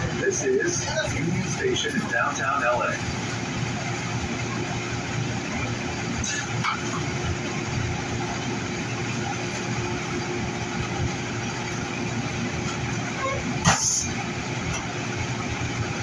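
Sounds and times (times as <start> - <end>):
train humming at platform: 0.0 - 16.0.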